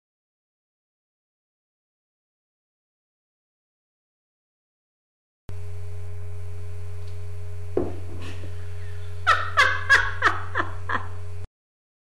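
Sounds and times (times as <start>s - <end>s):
steady low hum: 5.5s - 11.5s
thump: 7.8s - 8.3s
woman laughing: 8.2s - 11.2s.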